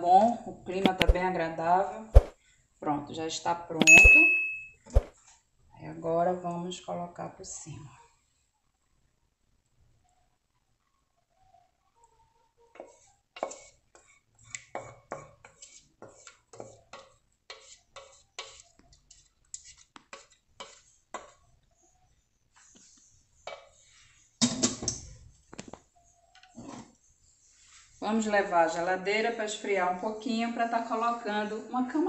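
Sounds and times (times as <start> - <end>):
wooden spoon scraping metal pot: 12.7 - 21.6, 22.6 - 24.4.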